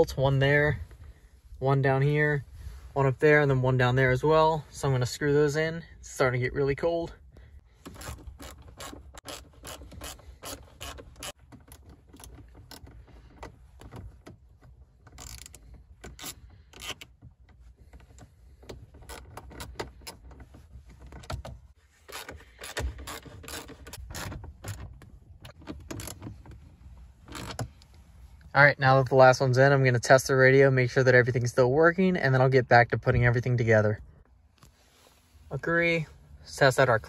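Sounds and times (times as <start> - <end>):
socket ratchet clicking: 7.9 - 12.9, 15.1 - 17.1.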